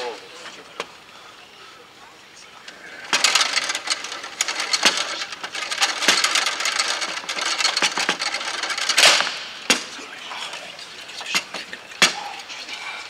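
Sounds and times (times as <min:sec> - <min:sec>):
rods knocking against bumpers: 0:03.0 - 0:10.0, 0:10.9 - 0:12.5
foosball ball clacking: 0:03.1 - 0:10.0.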